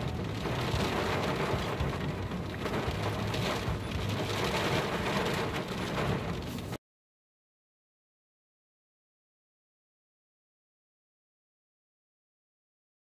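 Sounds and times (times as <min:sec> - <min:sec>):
heavy rain on car roof: 0:00.0 - 0:06.8.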